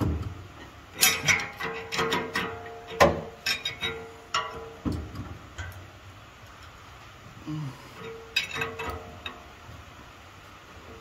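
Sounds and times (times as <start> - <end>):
wrench clinking against nut: 8.0 - 9.4.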